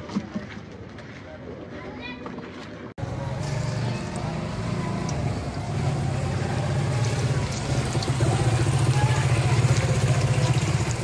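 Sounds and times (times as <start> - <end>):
low engine-like rumble: 3.0 - 11.0.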